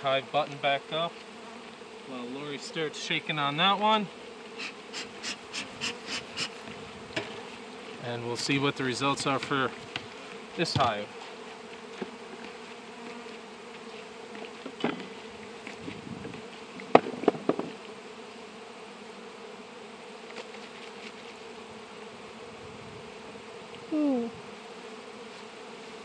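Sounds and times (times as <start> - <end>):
honeybees buzzing: 0.0 - 26.0
sharp knocks: 16.9 - 17.8.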